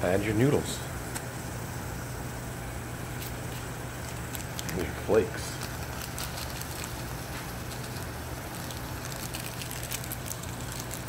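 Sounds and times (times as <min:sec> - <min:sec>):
water boiling and bubbling: 0:01.4 - 0:11.0.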